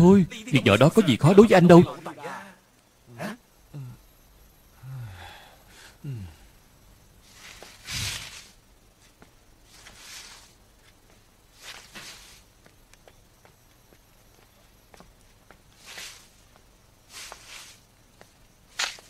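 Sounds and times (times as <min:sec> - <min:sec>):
faint footsteps: 0:07.3 - 0:19.0.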